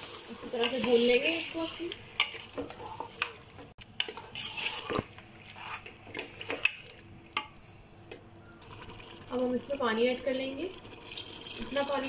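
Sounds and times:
meat frying: 0.0s - 7.3s, 8.6s - 12.0s
spatula scraping metal pot: 4.0s - 5.9s.

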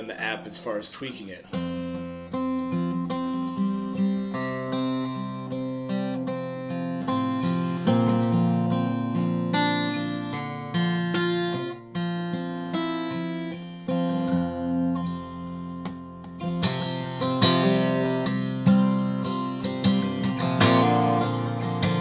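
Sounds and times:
acoustic guitar playing: 0.0s - 22.0s.

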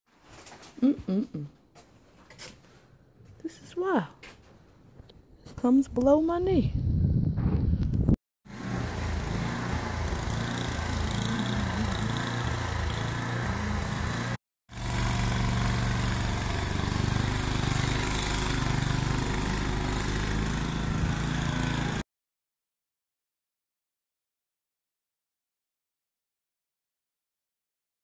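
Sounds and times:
snowblower engine running: 8.5s - 22.0s.

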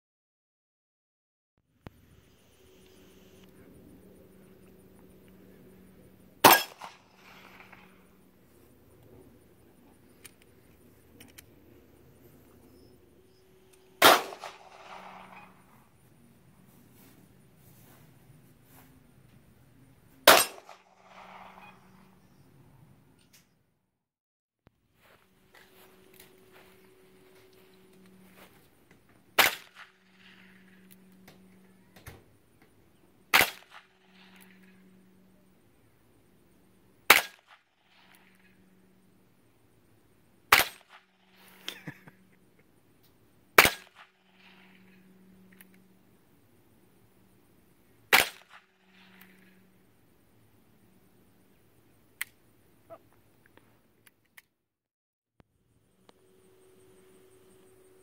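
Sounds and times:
handgun shot with echo: 6.4s - 7.8s, 14.0s - 15.4s, 20.3s - 21.6s, 29.4s - 29.8s, 33.3s - 33.8s, 37.1s - 37.5s, 40.5s - 41.0s, 43.6s - 44.0s.

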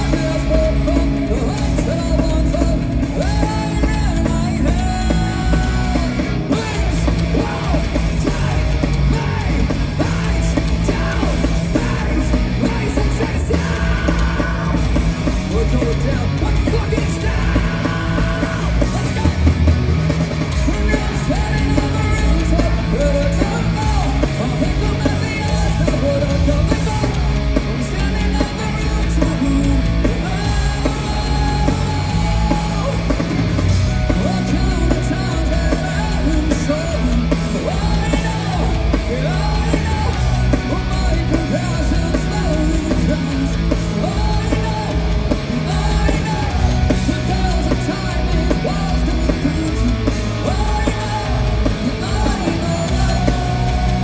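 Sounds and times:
shouted vocals: 0.0s - 19.9s
drums: 0.0s - 54.0s
electric guitars: 0.0s - 54.0s.

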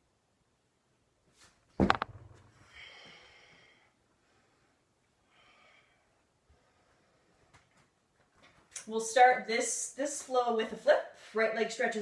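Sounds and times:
person landing on floor thud: 1.8s - 2.4s.

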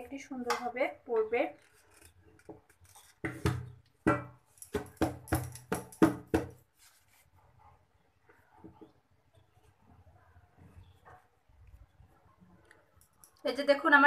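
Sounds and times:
knocks on metal bowl: 3.3s - 6.5s.

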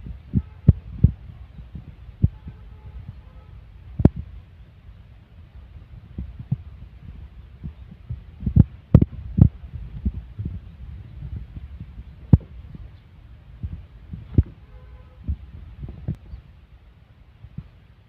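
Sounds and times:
microphone thumps: 0.0s - 3.2s, 4.0s - 4.3s, 6.1s - 12.9s, 13.6s - 14.6s
wind buffeting microphone: 0.0s - 18.0s.

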